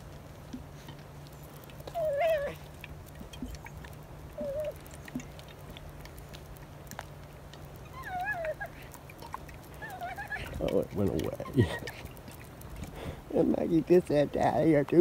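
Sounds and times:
small dog whining: 1.8 - 2.7, 3.4 - 5.4, 7.8 - 12.2.

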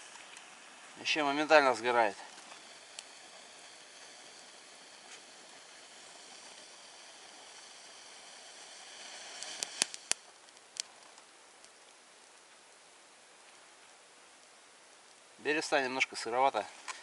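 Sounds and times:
match hissing: 0.1 - 12.4
bark crackling and popping: 9.4 - 12.6.

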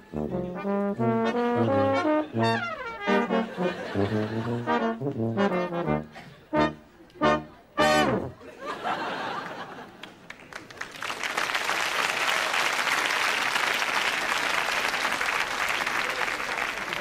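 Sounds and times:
crowd applauding: 9.0 - 17.0.

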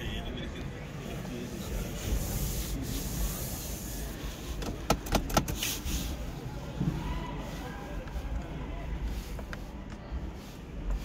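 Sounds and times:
sharp clicks of car controls: 4.6 - 5.8.

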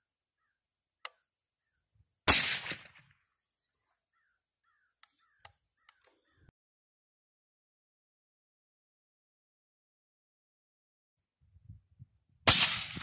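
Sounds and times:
suppressed rifle shot: 2.3 - 3.1, 12.5 - 13.0.

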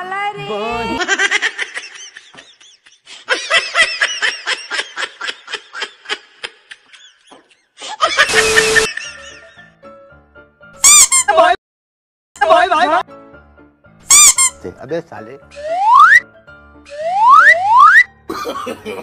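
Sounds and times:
high-pitched laughter: 1.0 - 9.4.

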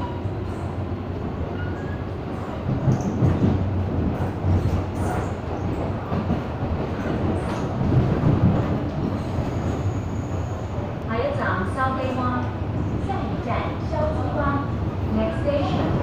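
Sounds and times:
train wheels rumbling: 0.0 - 16.0.

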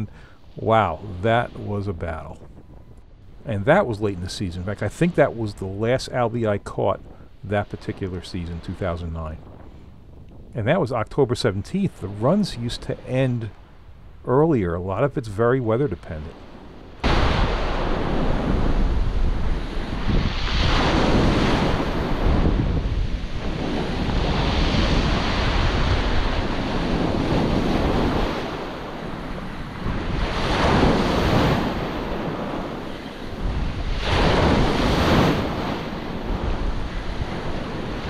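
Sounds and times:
wind buffeting microphone: 0.0 - 38.0
small waves breaking on beach: 15.8 - 38.0.

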